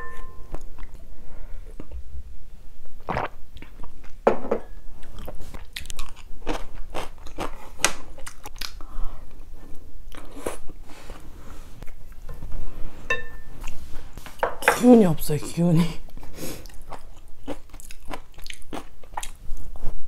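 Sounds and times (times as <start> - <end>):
crisp chewing crunches: 5.0 - 8.8, 16.6 - 20.0.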